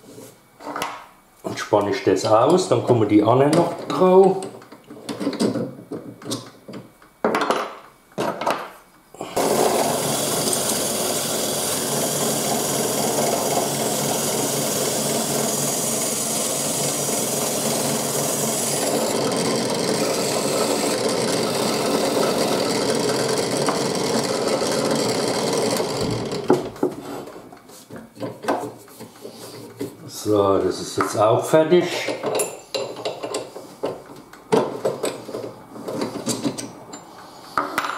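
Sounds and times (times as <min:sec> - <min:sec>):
drill press running: 0:09.2 - 0:27.0
sanding rasp: 0:09.4 - 0:23.2.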